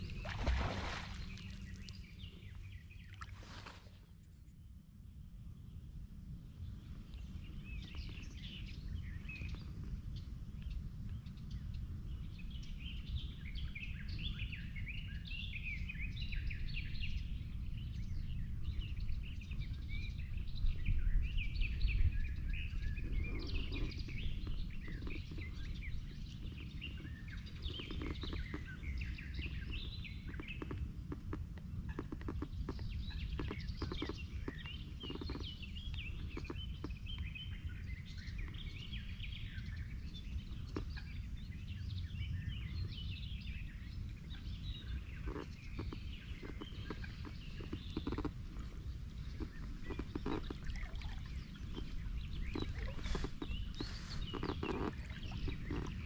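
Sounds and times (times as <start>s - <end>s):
steady low rumble: 0.0s - 4.1s
small birds chirping: 0.0s - 4.8s, 6.6s - 56.0s
faint clicks: 44.8s - 56.0s.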